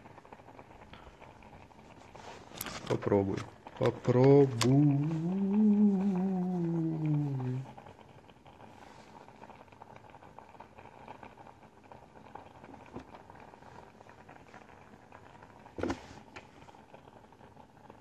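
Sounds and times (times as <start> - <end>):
crackling handling noise: 0.0 - 5.1.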